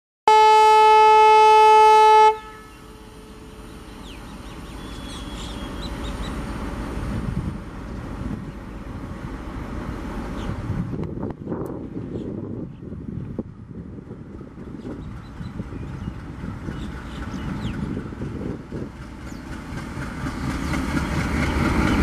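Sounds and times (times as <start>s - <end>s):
locomotive air horn blast: 0.3s - 3.5s
diesel engine rumble: 2.8s - 22.0s.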